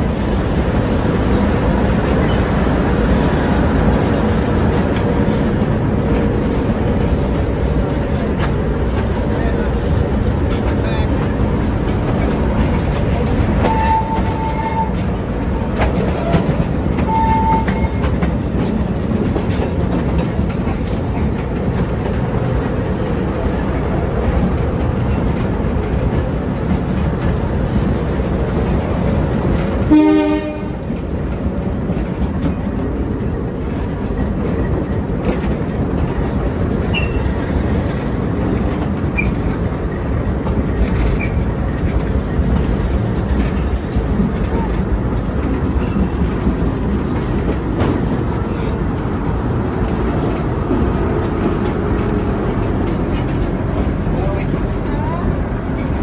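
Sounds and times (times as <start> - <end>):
train rumble and wheel clatter: 0.0 - 56.0
train horn blast: 13.6 - 15.0, 17.1 - 18.1, 29.8 - 30.8.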